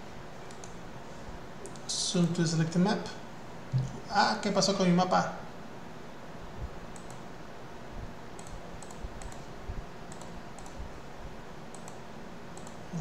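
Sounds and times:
faint steady hiss: 0:00.0 - 0:13.0
computer mouse clicking: 0:00.5 - 0:00.8, 0:01.6 - 0:01.9, 0:06.9 - 0:07.3, 0:08.4 - 0:09.5, 0:10.1 - 0:10.8, 0:11.7 - 0:12.0, 0:12.6 - 0:12.8.

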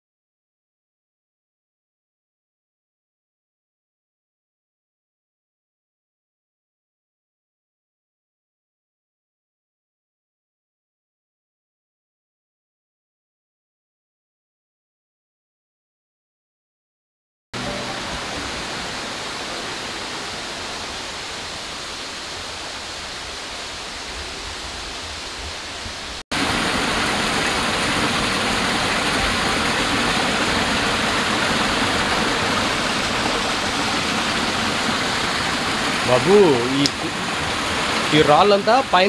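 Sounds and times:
water rushing over rocks: 0:17.6 - 0:39.0.

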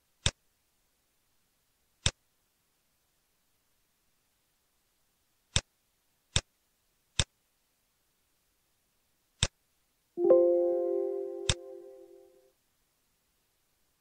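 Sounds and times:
computer warning chime: 0:10.2 - 0:12.4.

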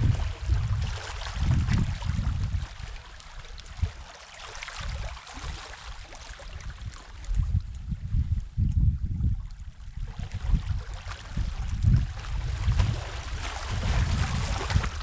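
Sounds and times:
sea washing on shore: 0:00.0 - 0:07.5, 0:10.0 - 0:15.0
wind rumbling on microphone: 0:00.0 - 0:15.0.

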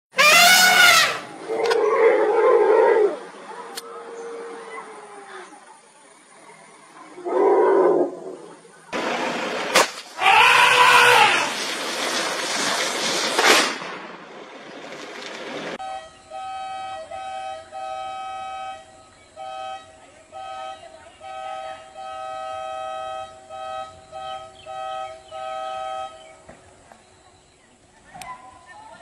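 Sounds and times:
firecracker bang: 0:00.1 - 0:01.3, 0:09.0 - 0:15.8
firecracker fizzing: 0:00.2 - 0:01.3, 0:09.0 - 0:15.8
vehicle horn blasts: 0:15.8 - 0:26.4.

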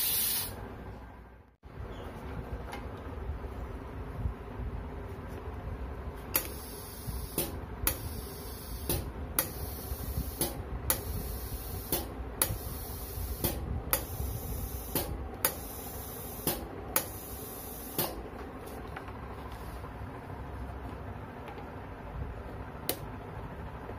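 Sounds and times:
air valve clicking: 0:00.0 - 0:00.6, 0:06.3 - 0:18.2
steady hiss of air: 0:00.0 - 0:00.7, 0:06.2 - 0:18.3.

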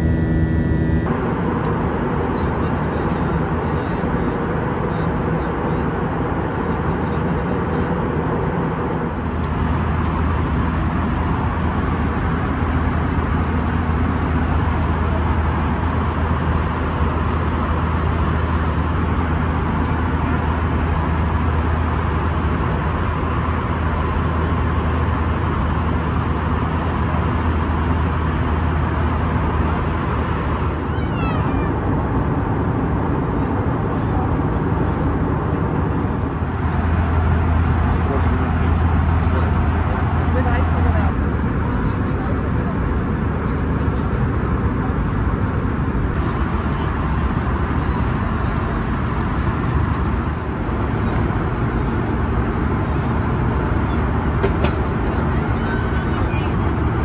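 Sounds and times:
deep low hum: 0:00.0 - 0:01.2, 0:34.8 - 0:47.5
airplane cabin engine rumble: 0:00.0 - 0:57.0.

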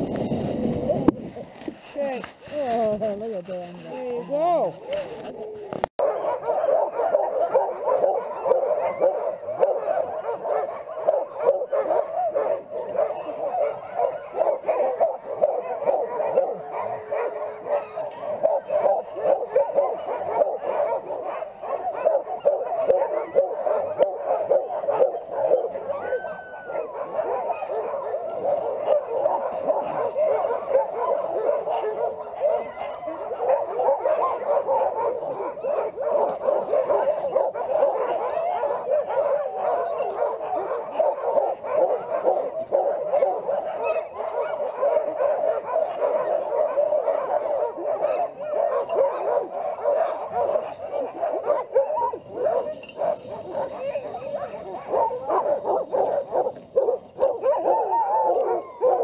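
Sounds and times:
many dogs barking and yelping: 0:00.0 - 0:59.0.

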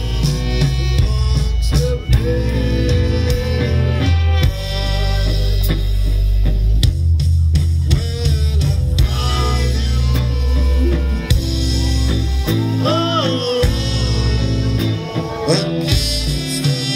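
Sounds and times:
bass guitar: 0:00.0 - 0:16.9
drum kit: 0:00.0 - 0:16.9
electric guitar: 0:00.0 - 0:16.9
keyboard: 0:00.0 - 0:16.9.

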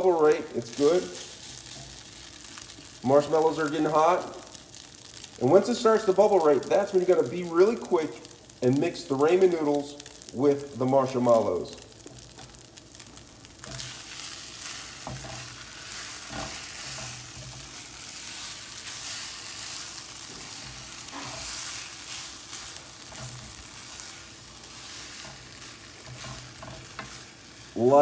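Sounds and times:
spatula stirring and scraping: 0:00.0 - 0:03.9, 0:11.9 - 0:28.0
marshmallows bubbling and sizzling: 0:00.0 - 0:28.0.

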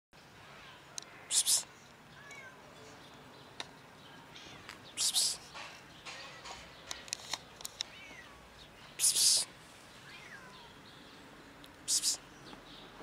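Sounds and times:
cat meowing: 0:02.2 - 0:02.7, 0:07.9 - 0:08.4, 0:10.0 - 0:10.8.

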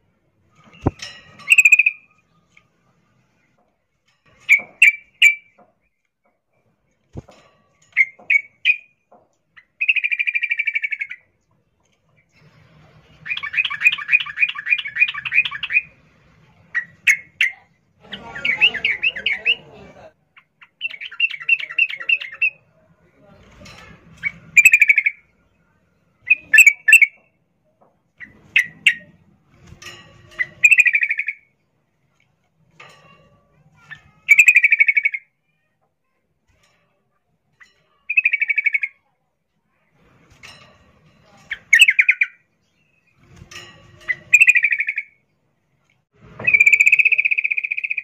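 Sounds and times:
bird sharp chirps: 0:00.7 - 0:02.1, 0:09.6 - 0:11.3, 0:13.2 - 0:15.9, 0:24.2 - 0:25.2, 0:30.4 - 0:31.5, 0:33.8 - 0:35.3, 0:37.6 - 0:39.0, 0:41.5 - 0:43.2, 0:44.0 - 0:45.2, 0:46.4 - 0:48.0
bird chattering trills: 0:01.5 - 0:02.1, 0:13.3 - 0:15.9, 0:24.6 - 0:25.2, 0:33.9 - 0:35.3, 0:37.6 - 0:39.0, 0:41.5 - 0:42.4, 0:44.0 - 0:45.2, 0:46.5 - 0:48.0.

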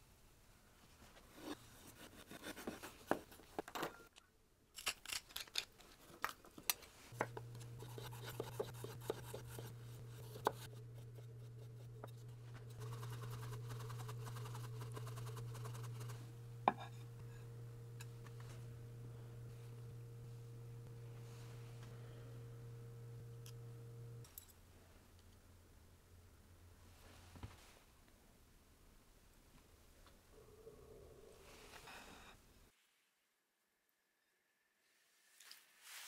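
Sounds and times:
steady low hum: 0:07.1 - 0:27.2.

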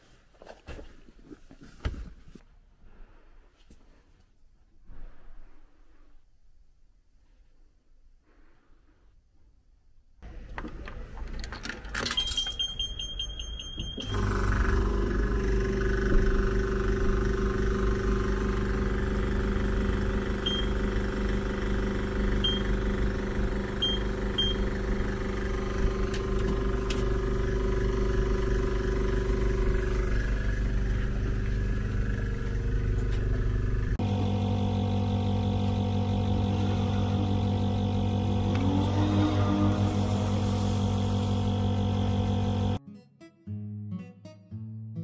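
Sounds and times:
coins clicking into slot: 0:11.4 - 0:13.6
high beeps: 0:12.2 - 0:14.1
air machine humming: 0:12.7 - 0:42.8.

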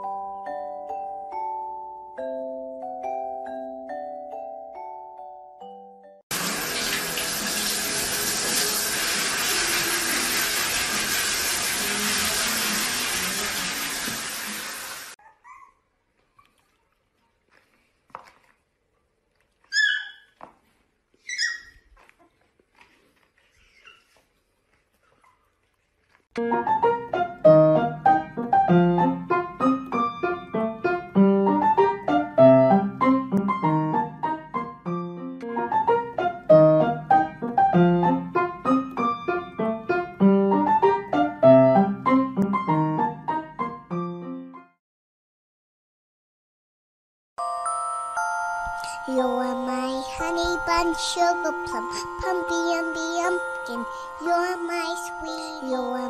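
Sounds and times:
water running into bathtub: 0:06.3 - 0:15.2
light piano tune: 0:26.4 - 0:44.7, 0:47.4 - 0:56.0.

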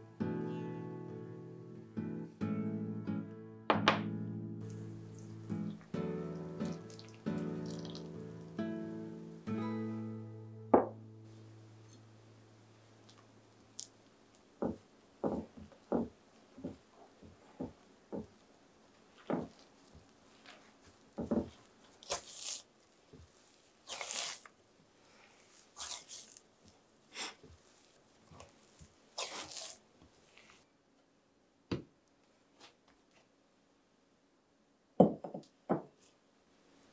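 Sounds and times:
hands kneading dough in a glass bowl: 0:19.1 - 0:24.6, 0:25.2 - 0:30.6
dough scraping against bowl: 0:25.6 - 0:26.4, 0:28.6 - 0:29.8.

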